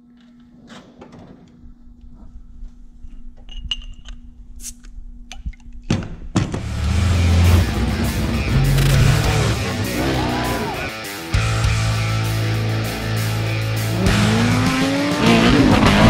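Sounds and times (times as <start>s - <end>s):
loud hit: 6.6s - 10.9s
low hum: 6.6s - 14.4s
loud music: 6.6s - 16.0s.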